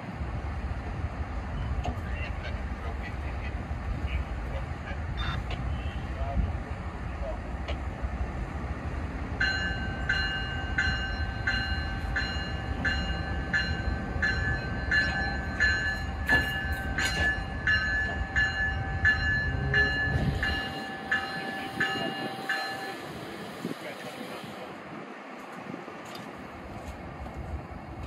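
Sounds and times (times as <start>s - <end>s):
low train rumble: 0.0s - 28.0s
locomotive bell ringing: 9.4s - 23.8s.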